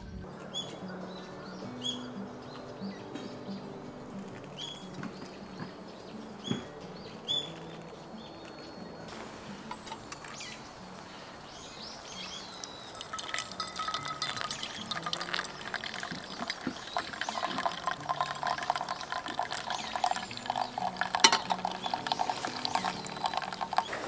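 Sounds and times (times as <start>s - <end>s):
hot water trickling onto coffee: 12.0s - 24.0s.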